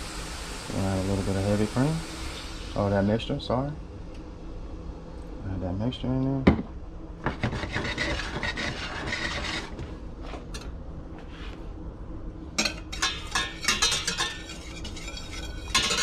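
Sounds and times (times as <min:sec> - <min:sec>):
whisk rattling against saucepan: 0:07.3 - 0:09.7, 0:12.6 - 0:16.0
rasping scrape: 0:07.3 - 0:09.9, 0:13.0 - 0:16.0.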